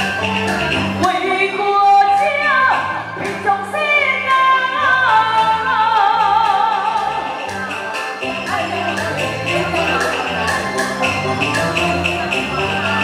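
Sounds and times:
instrumental accompaniment: 0:00.0 - 0:13.0
woman singing opera through microphone: 0:01.1 - 0:07.2.

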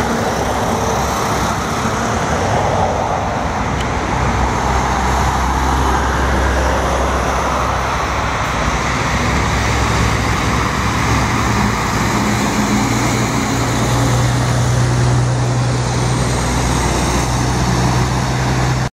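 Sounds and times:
tyre and traffic noise: 0:00.0 - 0:18.9
truck diesel engine driving past: 0:04.0 - 0:18.9.

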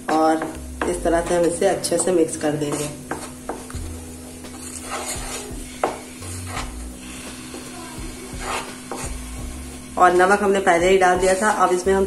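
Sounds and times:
mixture sizzling and bubbling: 0:00.0 - 0:12.0
spatula scraping a pan: 0:01.2 - 0:03.7, 0:04.3 - 0:10.2, 0:10.8 - 0:11.9.

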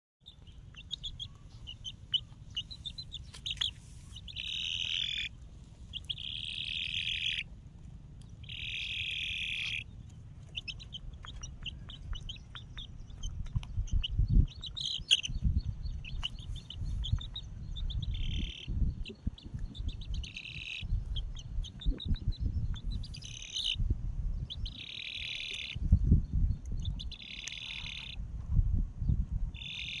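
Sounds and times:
nestling bird shrill cries: 0:00.3 - 0:05.3, 0:06.0 - 0:07.5, 0:08.4 - 0:09.9, 0:23.0 - 0:23.8, 0:24.5 - 0:25.8
low rumble: 0:00.3 - 0:24.9, 0:25.7 - 0:27.2.

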